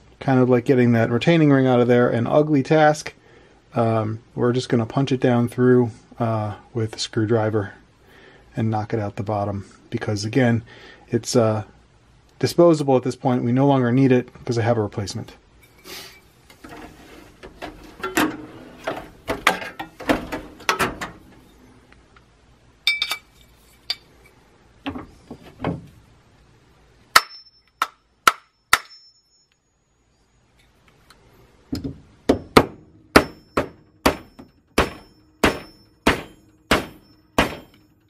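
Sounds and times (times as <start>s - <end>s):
hammer tapping metal: 22.9s - 23.3s, 27.1s - 29.6s, 32.3s - 37.9s.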